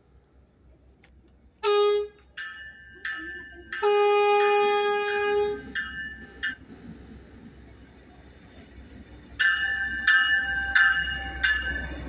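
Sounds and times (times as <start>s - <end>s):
train horn blasts: 1.6s - 2.2s, 3.8s - 5.8s.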